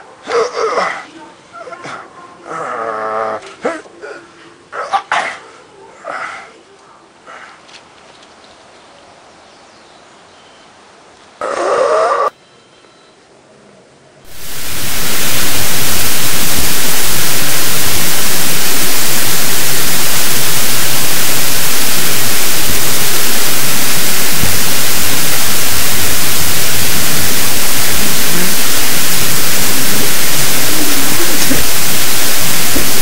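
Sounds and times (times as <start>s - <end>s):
static hiss: 14.3s - 33.0s.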